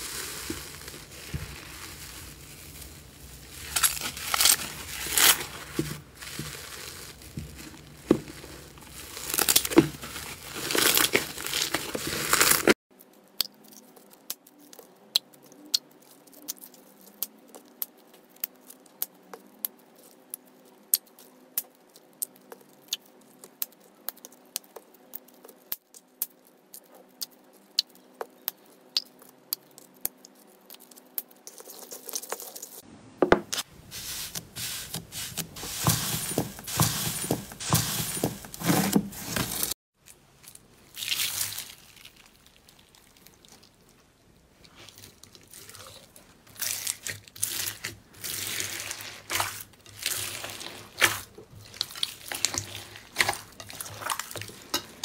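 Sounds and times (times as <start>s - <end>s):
foam slime crackling and popping: 0.0s - 12.8s, 40.4s - 55.0s.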